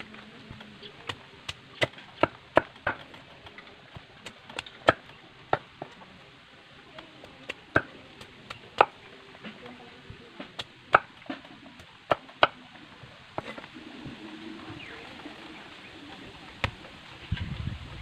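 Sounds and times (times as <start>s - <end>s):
machete chopping bamboo: 4.0s - 6.0s, 10.5s - 12.6s.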